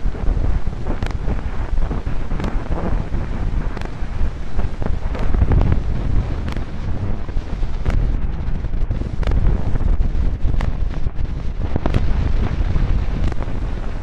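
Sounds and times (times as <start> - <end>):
loud dense rumbling: 0.0 - 14.0
sharp click: 1.0 - 1.2, 9.2 - 9.4.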